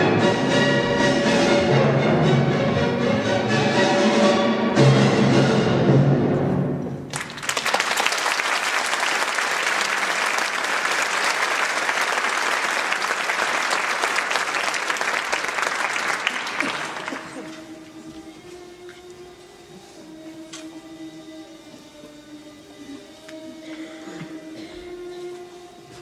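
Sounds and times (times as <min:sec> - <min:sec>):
orchestral music: 0:00.0 - 0:07.3
audience applause: 0:07.1 - 0:17.6.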